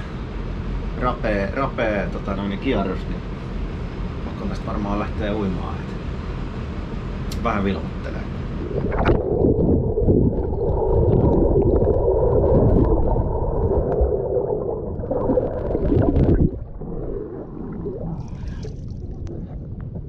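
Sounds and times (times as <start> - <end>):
quiet water noise: 0.0 - 20.0
muffled underwater gurgling: 7.5 - 20.0.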